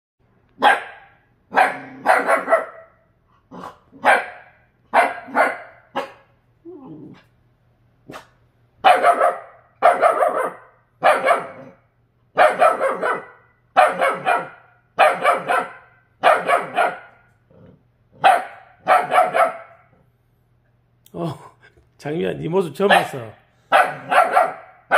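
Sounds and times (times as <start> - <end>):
dog barking: 0.6 - 6.3, 8.1 - 11.8, 12.4 - 17.3, 18.2 - 19.9, 22.9 - 24.9
dog growling: 6.6 - 7.3, 17.5 - 18.2.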